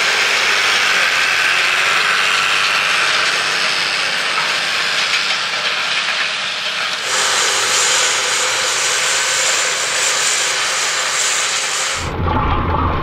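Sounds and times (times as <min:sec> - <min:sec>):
tractor engine and machinery: 0:00.0 - 0:13.0.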